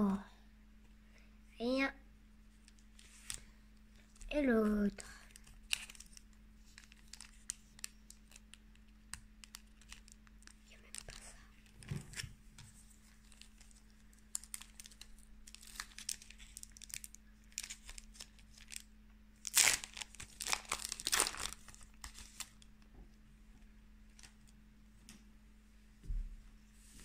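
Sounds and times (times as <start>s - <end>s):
foil wrapper tearing and crinkling: 5.2s - 11.2s, 13.2s - 22.7s.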